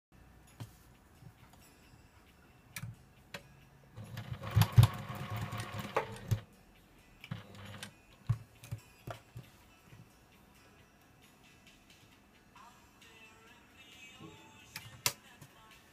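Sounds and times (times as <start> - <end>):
sewing machine stitching: 4.0 - 6.4, 7.3 - 7.9.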